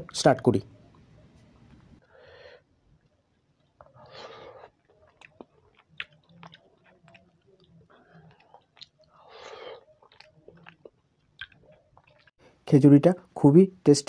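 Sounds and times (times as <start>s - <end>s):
chewing soft food: 2.8s - 12.4s.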